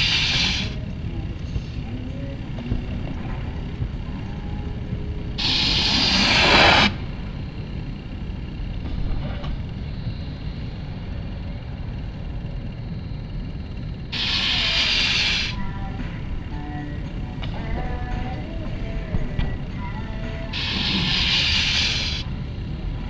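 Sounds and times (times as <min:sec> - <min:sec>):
snowboards hissing on plastic ramp: 0:00.0 - 0:00.8, 0:05.4 - 0:07.1, 0:14.2 - 0:15.6, 0:20.6 - 0:22.2.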